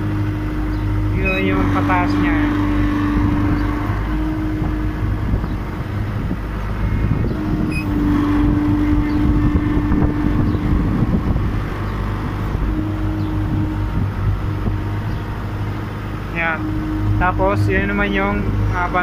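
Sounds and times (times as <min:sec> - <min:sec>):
diesel engine running: 0:00.0 - 0:19.0
steady whine: 0:00.0 - 0:19.0.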